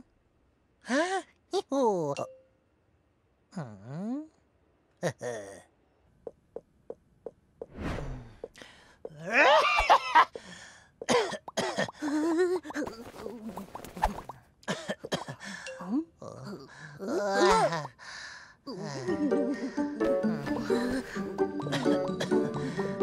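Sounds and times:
cartoon vocal grunts and warbles: 0:03.5 - 0:04.4, 0:05.0 - 0:05.7, 0:15.7 - 0:18.0, 0:18.6 - 0:19.2
whoosh: 0:07.7 - 0:08.4.

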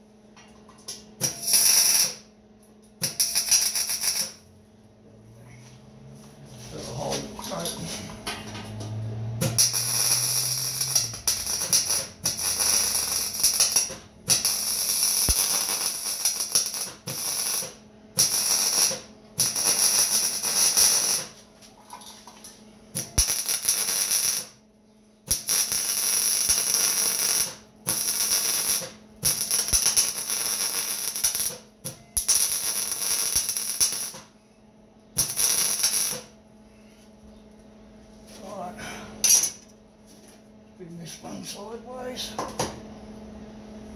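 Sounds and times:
steady low hum: 0:00.0 - 0:43.9
welder crackling sizzle: 0:01.2 - 0:02.3, 0:03.0 - 0:04.4, 0:09.4 - 0:21.4, 0:23.0 - 0:24.6, 0:25.3 - 0:34.3, 0:35.2 - 0:36.4.

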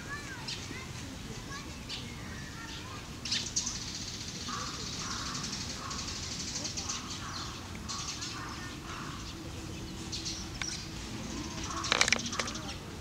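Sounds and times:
birds calling: 0:01.7 - 0:13.0
sharp clicks and knocks: 0:11.7 - 0:12.6.

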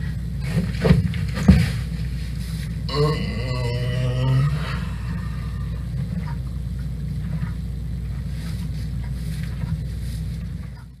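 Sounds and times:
low rumble of room tone: 0:00.0 - 0:11.0
faint rustles and ticks: 0:06.0 - 0:11.0.

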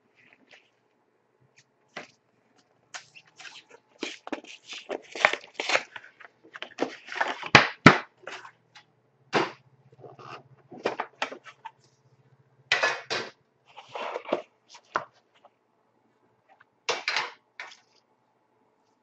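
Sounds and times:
plastic shrink wrap crinkling: 0:01.5 - 0:08.5.

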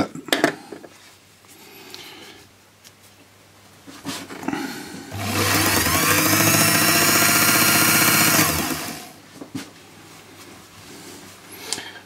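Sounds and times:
lathe motor whining: 0:05.1 - 0:09.1.

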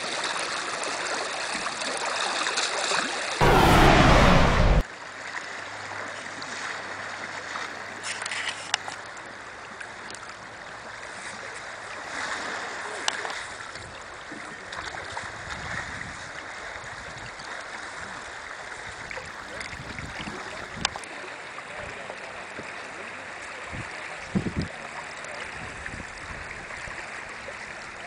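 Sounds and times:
short low thumps: 0:03.4 - 0:04.8.

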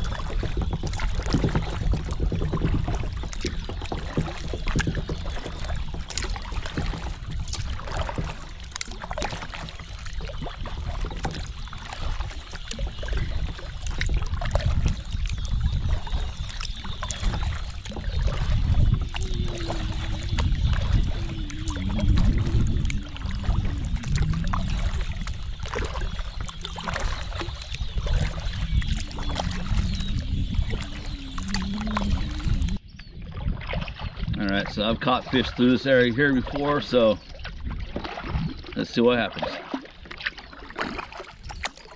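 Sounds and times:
kayak paddle splashing: 0:00.0 - 0:41.9
water trickling off paddle: 0:00.0 - 0:41.9
steady low rumble: 0:17.0 - 0:33.1.

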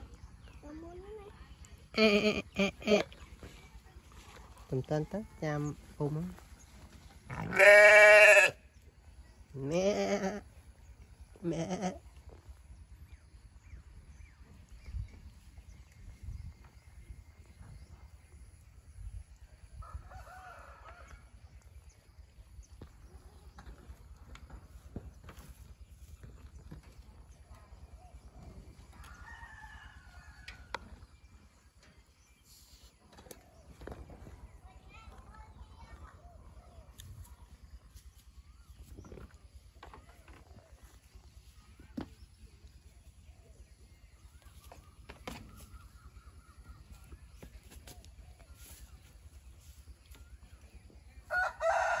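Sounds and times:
faint rooster crow: 0:19.8 - 0:21.4, 0:28.9 - 0:30.8, 0:51.2 - 0:52.0
rooster crowing: 0:51.3 - 0:52.0.

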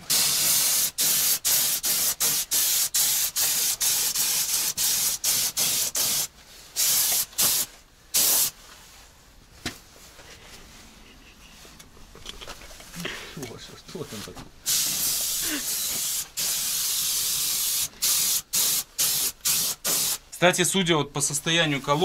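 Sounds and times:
pressurised spray hissing: 0:00.0 - 0:08.6, 0:14.6 - 0:20.3.

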